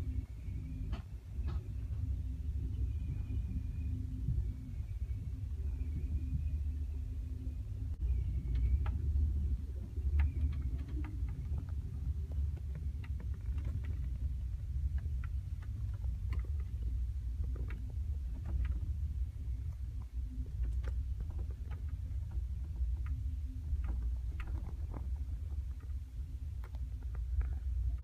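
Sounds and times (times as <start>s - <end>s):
light clicks and rattles: 0.0s - 6.7s, 7.3s - 28.0s.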